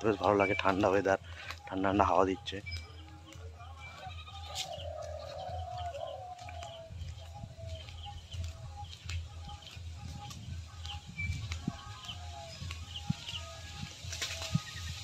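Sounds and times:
birds calling: 0:00.0 - 0:15.0
high bird chirps: 0:02.6 - 0:08.9.

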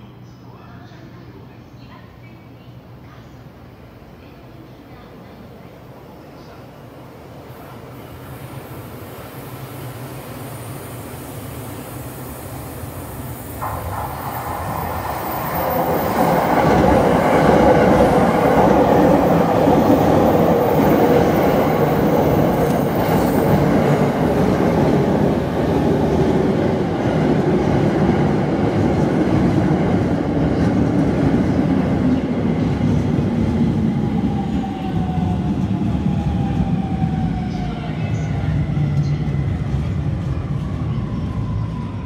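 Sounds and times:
train wheel and motor rumble: 0:07.5 - 0:42.0.

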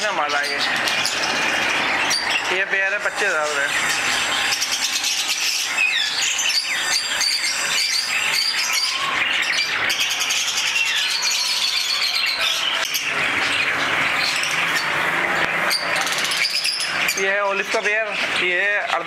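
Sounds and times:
many birds chirping: 0:00.0 - 0:19.0.

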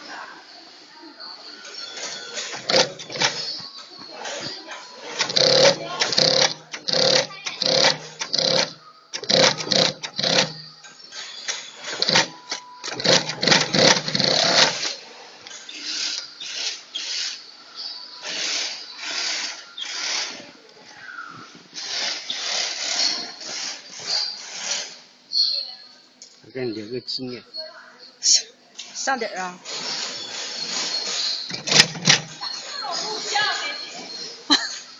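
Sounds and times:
sewing machine stitching in bursts: 0:02.4 - 0:03.6, 0:05.0 - 0:10.6, 0:11.5 - 0:15.0, 0:29.7 - 0:32.4.

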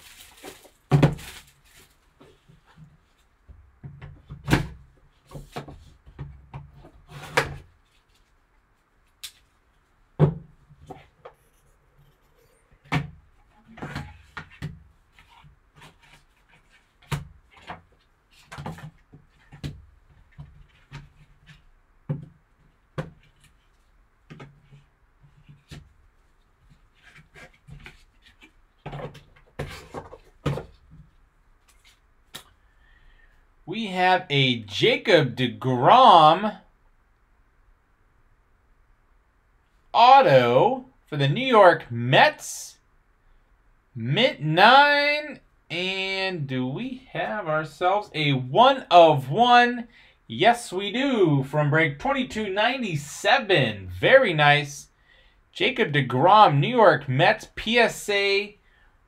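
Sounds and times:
paper and cardboard rustling: 0:00.0 - 0:03.3, 0:23.2 - 0:32.1.

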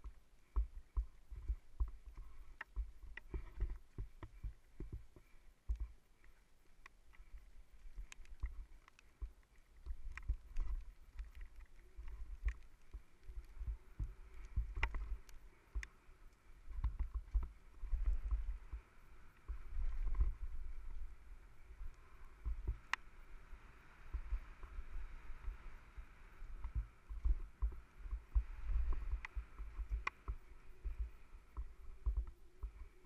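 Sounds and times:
wind rumble: 0:07.2 - 0:33.0.

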